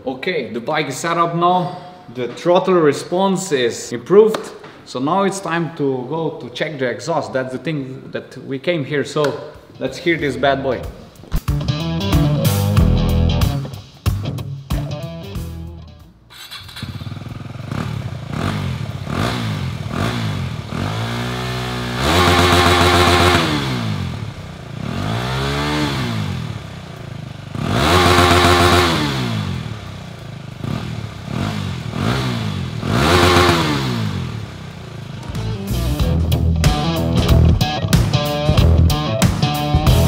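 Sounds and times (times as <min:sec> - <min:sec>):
motorcycle engine revving: 0:16.3 - 0:37.5.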